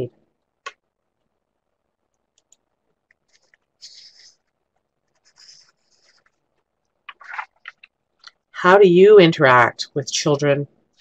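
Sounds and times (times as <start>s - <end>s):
faint rustling hiss: 0.3s - 8.6s
soft clicks: 2.1s - 3.7s.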